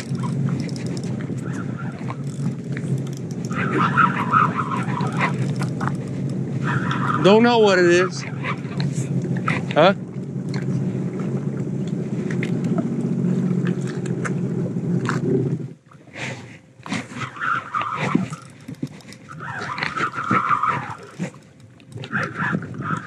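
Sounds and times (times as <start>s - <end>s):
fishing reel clicking and rasping: 0.0s - 8.2s, 18.0s - 22.0s
jet ski engine idling: 0.0s - 15.9s.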